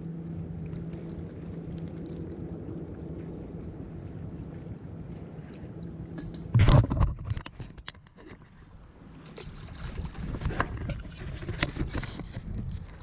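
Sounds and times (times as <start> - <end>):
water sloshing against rocks: 6.0 - 12.2.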